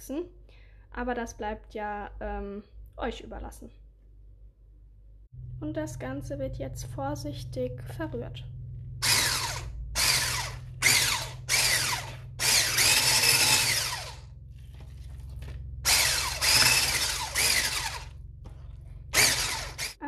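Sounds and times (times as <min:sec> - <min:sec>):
electric hand mixer whirring: 0:09.0 - 0:14.3, 0:15.8 - 0:20.0.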